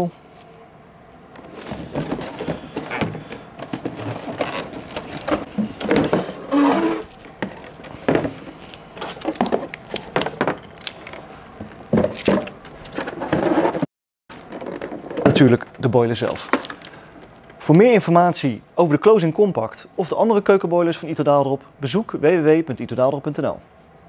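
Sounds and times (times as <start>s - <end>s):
cardboard box rustling and scraping: 1.4s - 9.6s, 12.1s - 13.8s.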